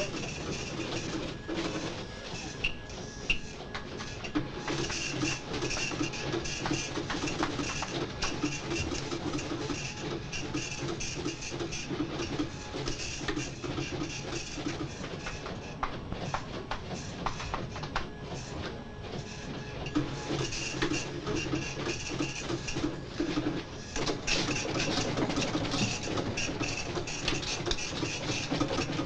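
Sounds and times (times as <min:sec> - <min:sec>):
office machines clattering: 0:00.0 - 0:29.0.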